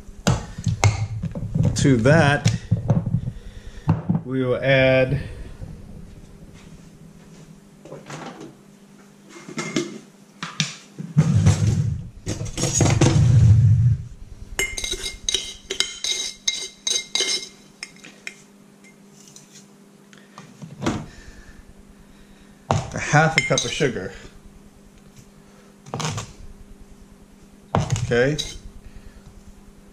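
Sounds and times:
kitchen knocks and thuds: 2.7s - 3.3s, 22.7s - 23.0s, 27.8s - 28.1s
metal utensils clinking: 14.6s - 18.4s, 28.4s - 28.6s.

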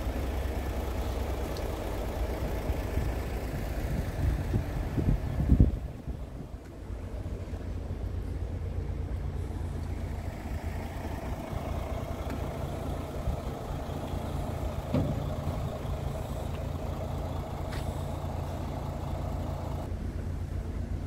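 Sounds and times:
diesel truck engine idling: 0.0s - 21.0s
brief thump: 14.9s - 15.2s.

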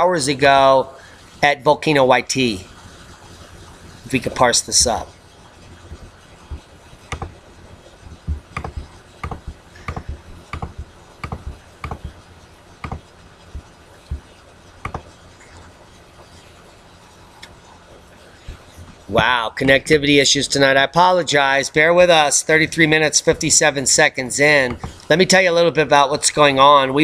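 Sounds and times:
computer mouse clicking: 7.1s - 7.4s, 8.1s - 12.2s, 12.8s - 15.2s.

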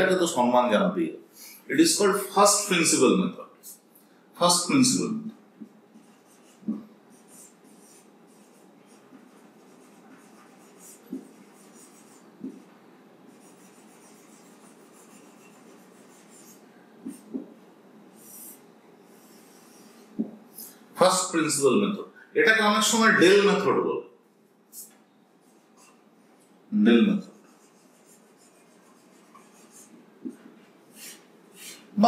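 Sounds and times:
marker pen writing on whiteboard: 4.5s - 21.3s, 24.7s - 31.9s
marker tapping on whiteboard: 5.6s - 6.9s, 10.0s - 12.7s, 17.0s - 17.6s, 20.2s - 20.4s, 29.2s - 30.5s.

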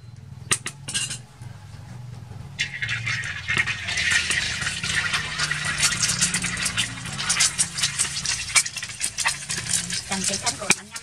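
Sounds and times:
low steady hum: 0.0s - 11.0s
egg sizzling in hot oil: 2.6s - 11.0s.

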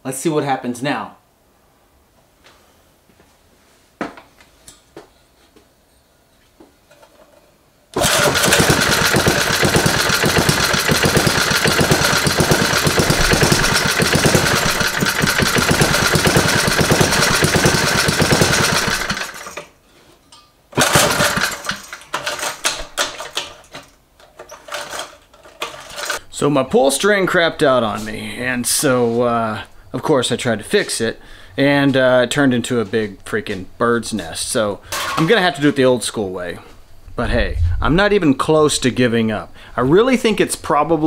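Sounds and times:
engine popping: 8.0s - 19.4s, 20.8s - 21.7s
small engine running: 8.0s - 19.6s, 20.8s - 21.8s.

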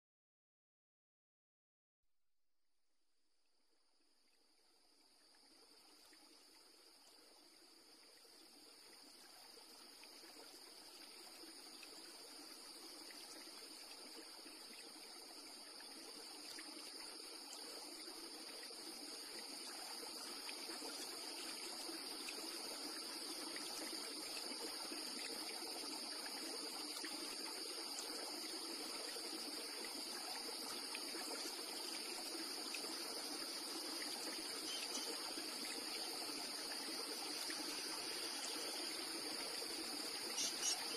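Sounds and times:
flowing water rushing: 8.2s - 40.9s.

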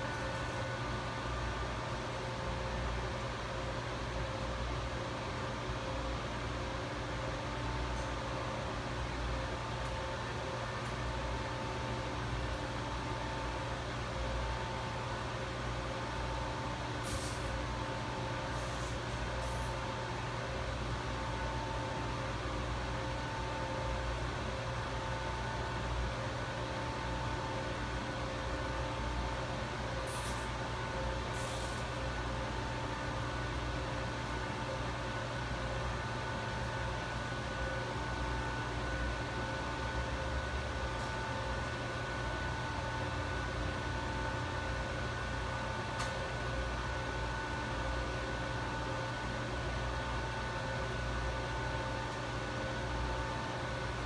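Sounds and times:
equipment hum and hiss: 0.0s - 54.0s.

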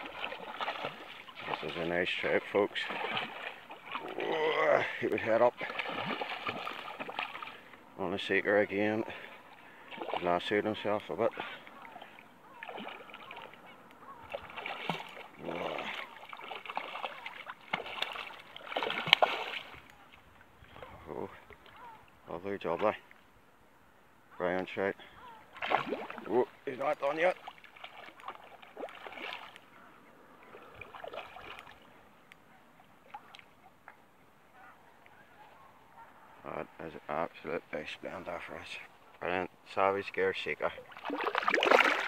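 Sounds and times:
fish splashing in water: 0.0s - 4.9s, 5.5s - 7.7s, 9.7s - 10.5s, 11.8s - 19.9s, 25.5s - 26.6s, 27.3s - 29.6s, 30.5s - 31.9s, 40.8s - 42.0s
water lapping: 0.0s - 23.2s, 24.7s - 42.0s
light ticks: 32.2s - 32.4s.

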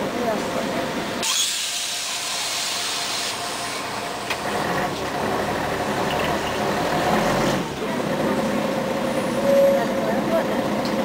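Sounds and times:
low diesel engine hum: 0.0s - 11.0s
tyres hissing on wet road: 0.9s - 9.5s.

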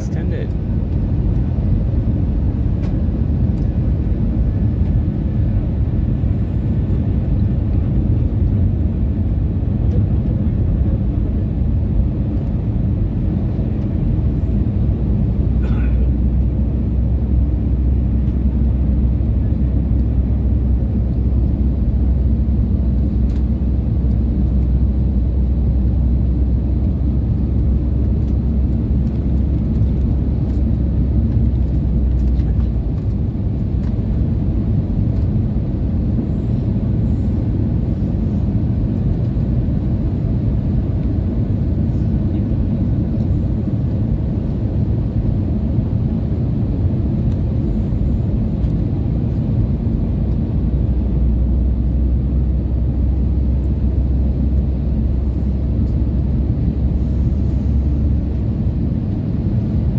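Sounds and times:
airplane cabin engine drone: 0.0s - 59.9s.

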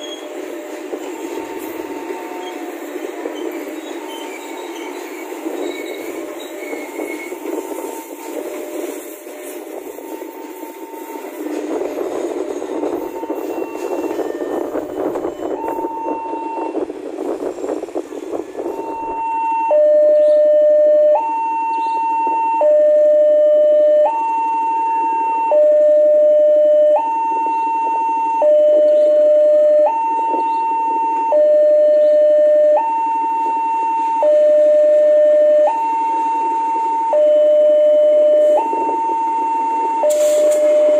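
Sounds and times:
train wheels rumbling: 0.0s - 19.3s
two-tone crossing alarm: 4.0s - 18.0s, 18.6s - 40.9s.

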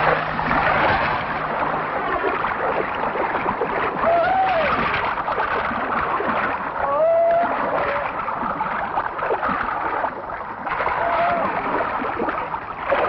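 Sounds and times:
river water rushing and splashing: 0.0s - 13.0s
people calling out: 10.9s - 11.6s.

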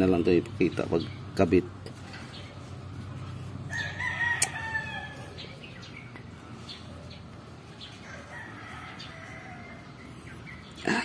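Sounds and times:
rooster crowing: 3.7s - 5.6s, 7.9s - 10.1s.

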